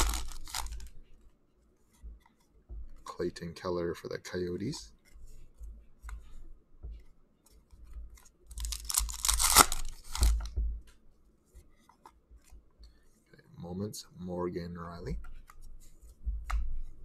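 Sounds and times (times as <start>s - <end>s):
wrapper tearing: 0.0s - 0.9s, 8.6s - 10.4s
cards rustling and tapping: 0.0s - 1.3s, 4.7s - 11.0s.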